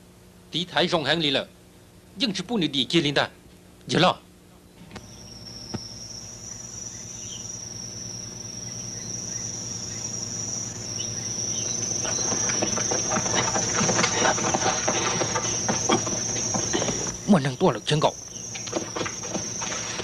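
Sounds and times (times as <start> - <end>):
insects chirring: 3.9 - 20.0
clicks and rustling: 12.0 - 17.2.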